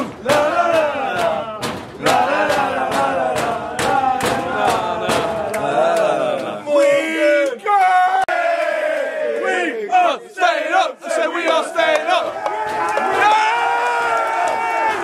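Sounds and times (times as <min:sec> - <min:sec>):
steady drum beat: 0:00.0 - 0:06.6, 0:11.8 - 0:13.5
crowd chanting in unison: 0:00.0 - 0:15.0.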